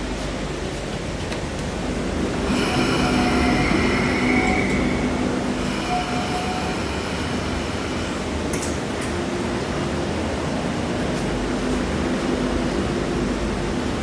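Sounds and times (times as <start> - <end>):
train carriage rumble: 0.0 - 14.0
steel wheel squeal: 2.5 - 7.4.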